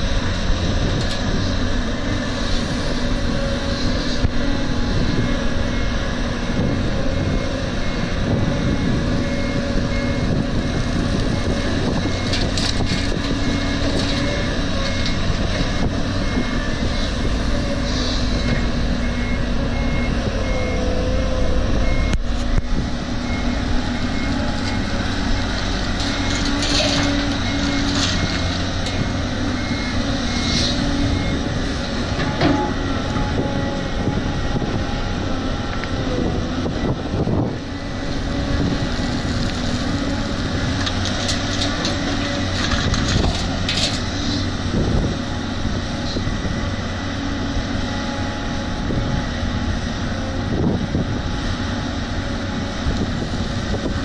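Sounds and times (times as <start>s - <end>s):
diesel engines running: 0.0s - 54.0s
reversing alarm beeping: 5.0s - 10.4s, 13.1s - 22.3s, 23.2s - 31.6s.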